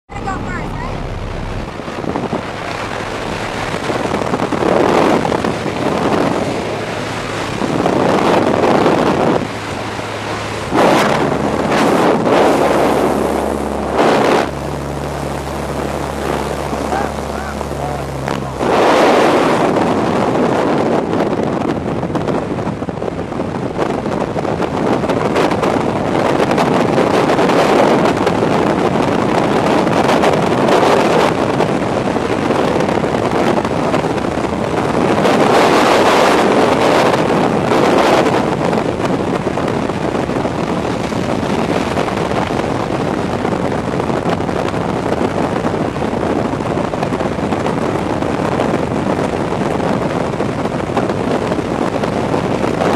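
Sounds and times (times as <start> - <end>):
wind rushing over microphone: 0.0 - 52.9.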